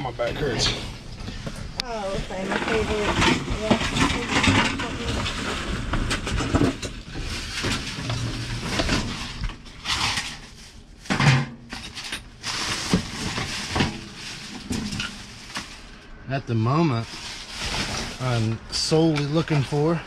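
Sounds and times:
objects knocking and clattering: 0:00.6 - 0:15.8
rustling: 0:00.6 - 0:19.9.

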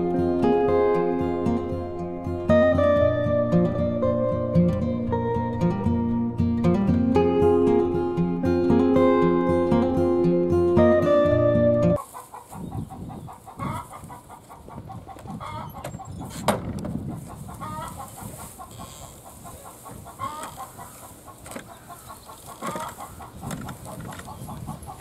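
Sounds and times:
acoustic guitar music: 0:00.0 - 0:12.0
chickens clucking: 0:12.0 - 0:25.0.

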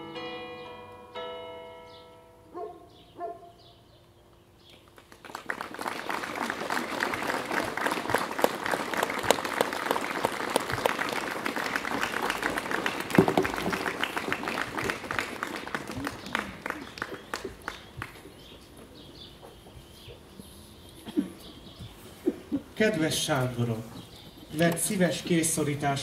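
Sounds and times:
plucked notes of music: 0:00.0 - 0:02.5
audience applauding: 0:04.9 - 0:18.6.

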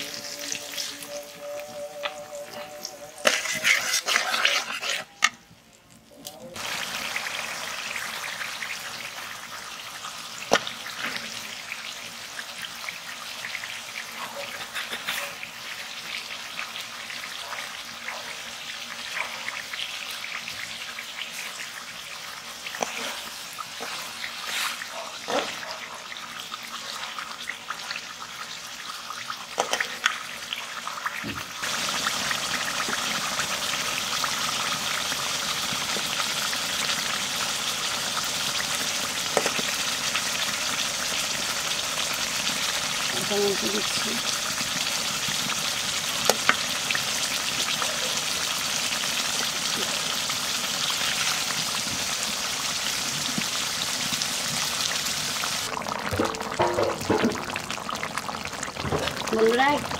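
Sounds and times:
fish sizzling in oil: 0:00.0 - 0:59.9
metal spatula scraping pan: 0:03.2 - 0:05.4.

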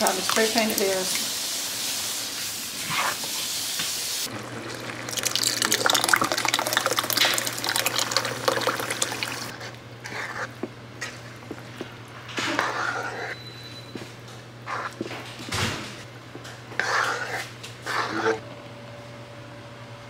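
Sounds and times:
liquid splashing into pan: 0:04.3 - 0:09.5
spoon scraping pan: 0:12.4 - 0:13.4, 0:14.7 - 0:15.0, 0:16.8 - 0:18.4.

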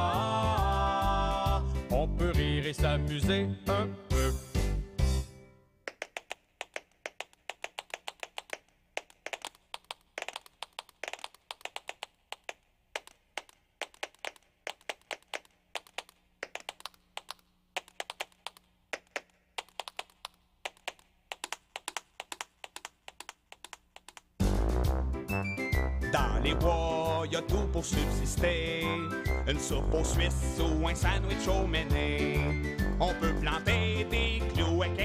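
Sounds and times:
sharp clicks and taps: 0:05.8 - 0:24.4.

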